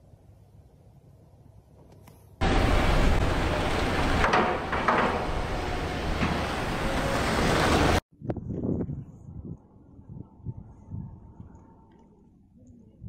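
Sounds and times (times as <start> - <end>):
strong wind buffeting microphone: 2.4 - 11.7.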